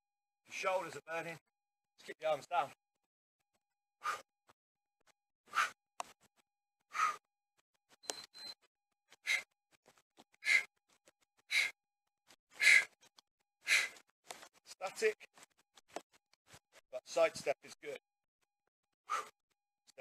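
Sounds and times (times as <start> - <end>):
man breathing hard: 4.0 - 4.3, 5.5 - 5.8, 6.9 - 7.3, 9.1 - 9.5, 10.4 - 11.8, 12.5 - 13.0, 13.6 - 14.1, 19.1 - 19.4.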